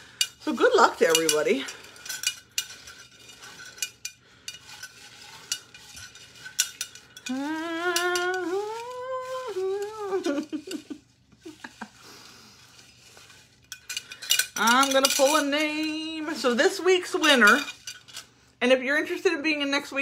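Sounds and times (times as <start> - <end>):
paper slips rustling in jar: 4.6 - 12.0
woman singing wordless tune: 7.3 - 10.6.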